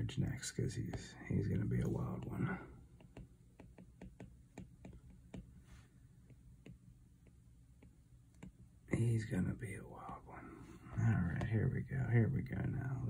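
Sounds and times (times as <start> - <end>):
stylus tapping on glass screen: 1.9 - 5.6, 6.2 - 9.1.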